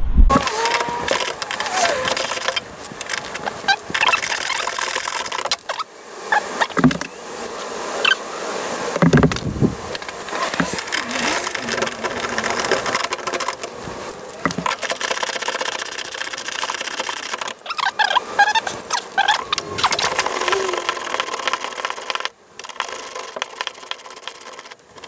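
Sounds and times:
squeaks: 0:00.3 - 0:02.6, 0:03.4 - 0:07.1, 0:17.6 - 0:21.1.

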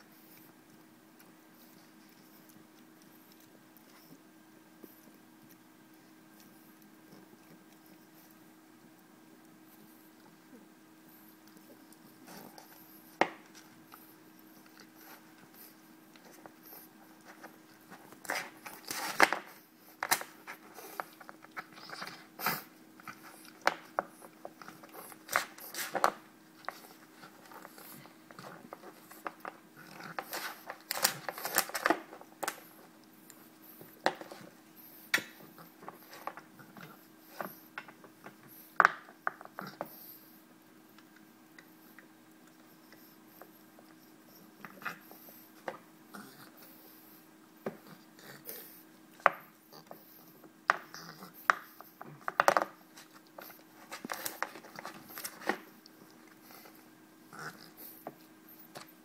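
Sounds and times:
faint steady hum: 0:00.0 - 0:59.0.

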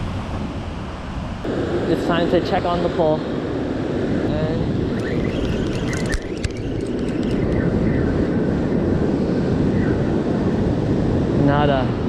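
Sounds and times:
wind on microphone: 0:00.0 - 0:12.0
camera handling clicks and rustles: 0:05.0 - 0:07.6.

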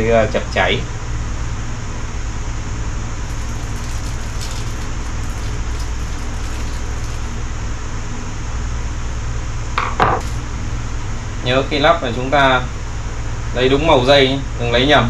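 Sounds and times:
steady low hum: 0:00.0 - 0:15.0
even hiss: 0:03.2 - 0:07.6.

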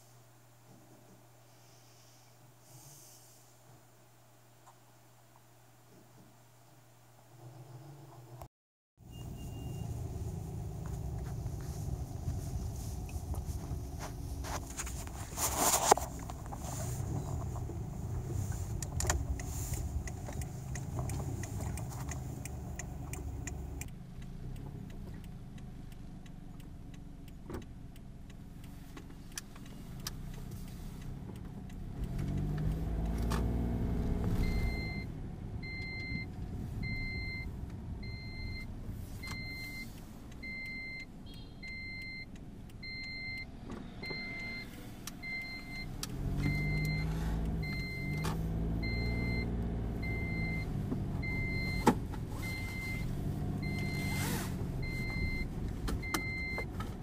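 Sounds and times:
car engine running: 0:09.0 - 0:41.4, 0:45.8 - 0:57.0.

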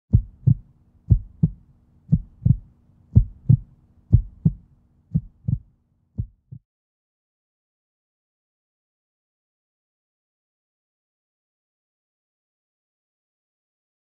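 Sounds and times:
faint low hum: 0:00.1 - 0:06.6
heartbeat thumps: 0:00.1 - 0:06.6.

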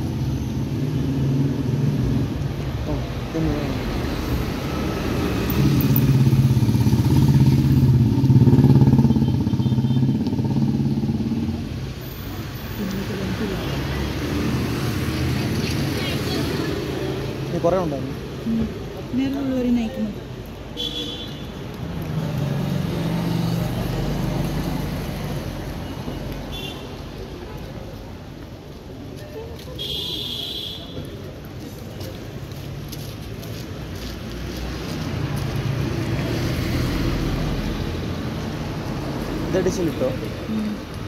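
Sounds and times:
vehicle passing by: 0:00.0 - 0:18.8, 0:21.8 - 0:25.8, 0:32.6 - 0:41.0.

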